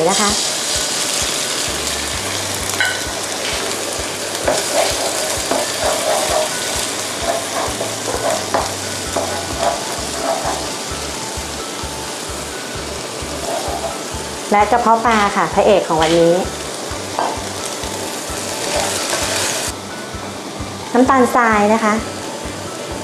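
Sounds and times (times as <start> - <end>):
spatula scraping wok: 0.0 - 11.4, 12.9 - 14.8, 15.9 - 20.0
egg sizzling in oil: 0.0 - 22.9.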